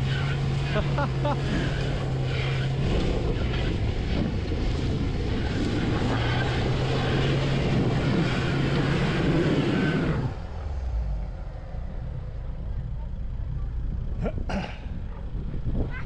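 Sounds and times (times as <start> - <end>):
pickup engine revving hard: 0.0 - 11.2
wheels spinning in mud: 0.0 - 14.1.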